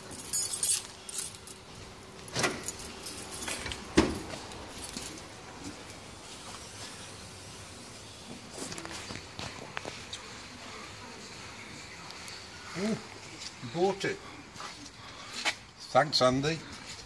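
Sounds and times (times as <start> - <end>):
keys jangling: 0.0 - 5.4.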